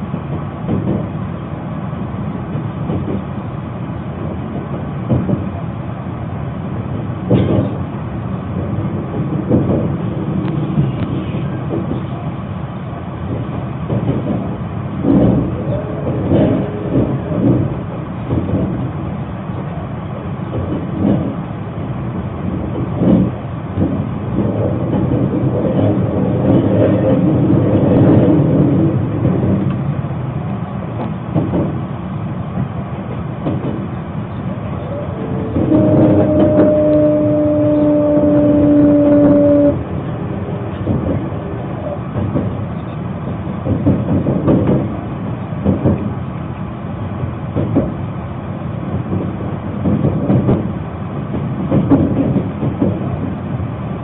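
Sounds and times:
rail clacks: 0.0 - 54.0
train wheels rumbling on rail: 0.0 - 54.0.

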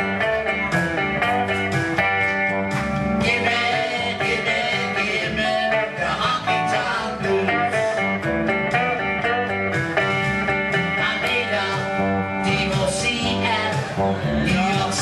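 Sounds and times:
bass guitar: 0.0 - 15.0
electric guitars: 0.0 - 15.0.

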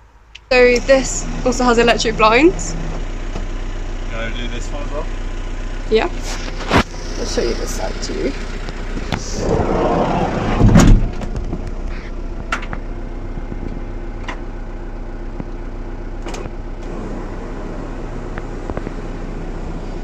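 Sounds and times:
loud thump: 9.2 - 11.6.

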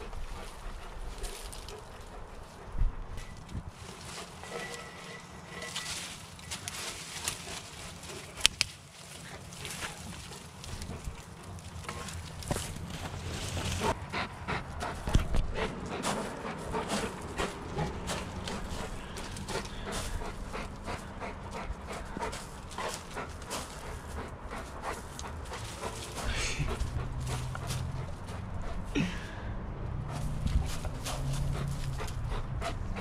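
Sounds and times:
dog panting: 0.0 - 8.5, 9.1 - 29.0, 29.9 - 33.0
twigs and leaves crackling: 0.5 - 2.6, 3.2 - 14.0, 14.9 - 21.1, 21.7 - 28.4.

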